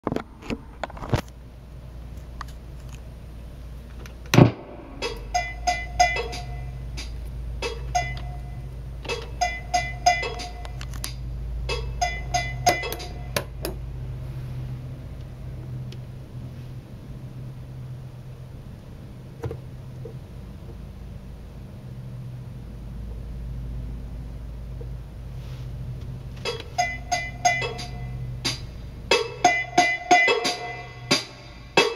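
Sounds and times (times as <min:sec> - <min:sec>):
low hum: 0:00.1 - 0:31.8
loud thump: 0:04.3 - 0:05.3
drum machine pattern: 0:04.5 - 0:13.8, 0:26.4 - 0:31.9.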